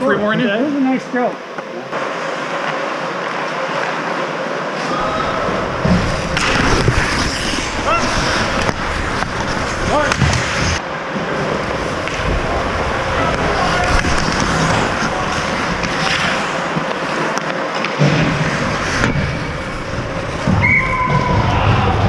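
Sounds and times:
skate blades scraping on ice: 5.0 - 22.0.

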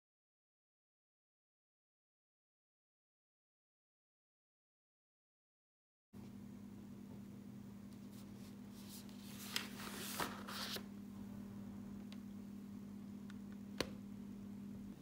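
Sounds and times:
steady low hum: 6.2 - 15.0
paper rustling: 8.0 - 10.9.

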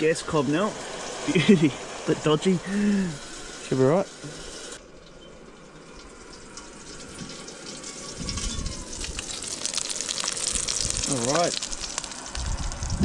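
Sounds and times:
gas stove hissing: 0.0 - 13.0
low rumbling: 8.0 - 13.0.

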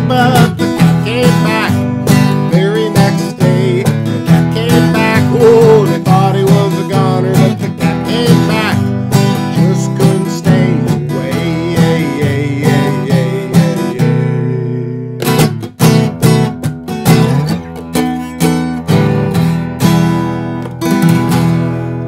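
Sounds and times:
man singing forcefully: 0.0 - 15.6
acoustic guitar strumming: 0.0 - 22.0.

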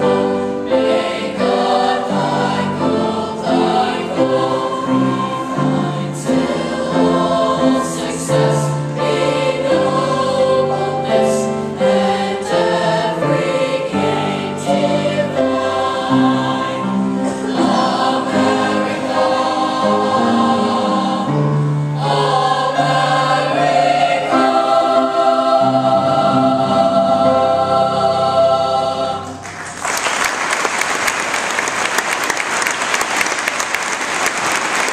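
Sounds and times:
youth choir singing: 0.0 - 29.7
audience applause: 29.4 - 34.9.

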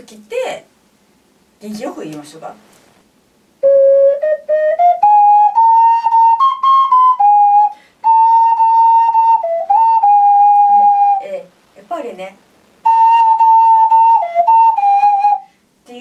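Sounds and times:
ocarina melody: 3.6 - 11.4, 12.8 - 15.5.

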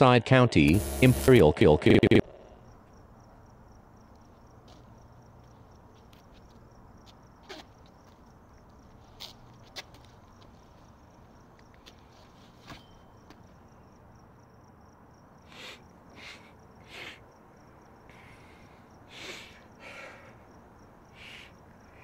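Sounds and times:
crickets chirping: 2.3 - 22.0.

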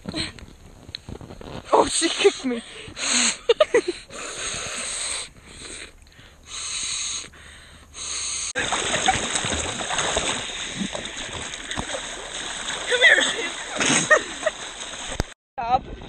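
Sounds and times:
gasps for air: 2.7 - 8.6
breath blown into valve: 4.1 - 8.6
water splashing: 8.6 - 16.0.

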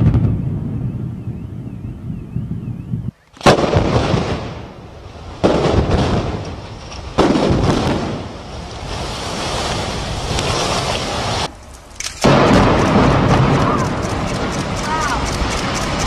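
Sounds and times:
explosive blasts: 0.0 - 2.6, 3.4 - 11.5, 12.2 - 16.0
collapsing building rumble: 3.7 - 16.0.

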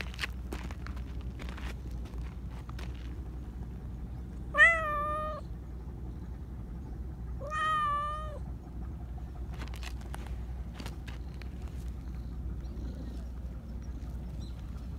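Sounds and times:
cat meowing: 4.5 - 5.4, 7.4 - 8.4.

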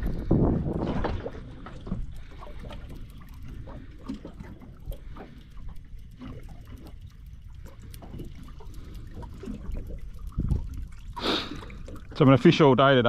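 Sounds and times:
waves lapping against boat hull: 0.0 - 13.0.

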